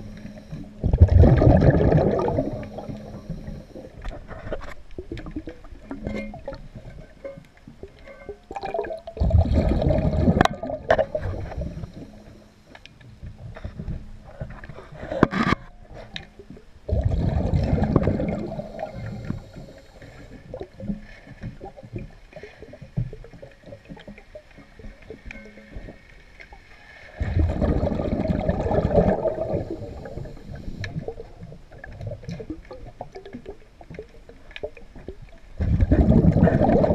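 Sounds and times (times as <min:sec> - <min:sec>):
underwater breath bubbles: 0:00.0 - 0:04.6, 0:08.5 - 0:12.5, 0:16.9 - 0:22.9, 0:27.0 - 0:33.6, 0:35.6 - 0:36.9
faint water gurgling: 0:00.0 - 0:36.9.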